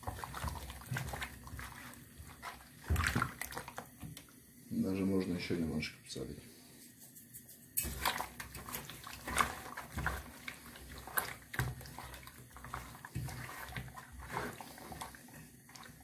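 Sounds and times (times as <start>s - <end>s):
wet fish squelching: 0.0s - 4.2s, 7.8s - 16.0s.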